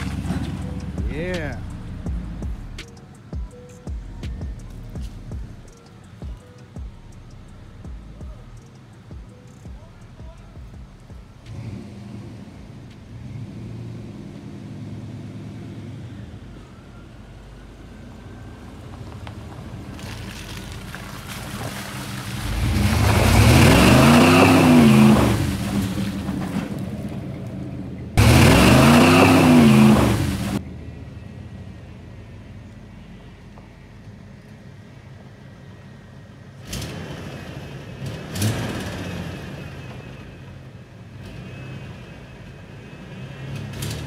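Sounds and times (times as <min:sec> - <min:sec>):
truck engine revving: 0:00.0 - 0:30.8, 0:36.5 - 0:44.0
tires churning through mud: 0:00.0 - 0:44.0.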